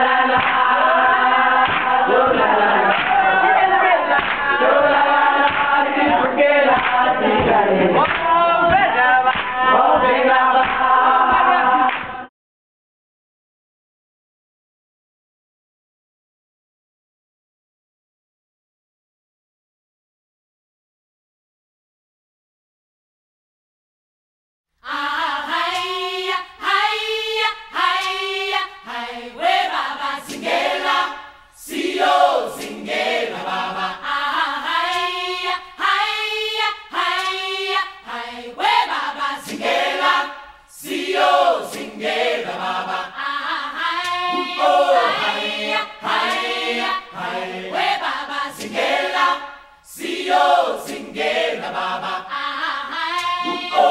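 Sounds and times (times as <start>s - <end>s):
choir singing a cappella: 0.0s - 12.3s, 24.8s - 53.9s.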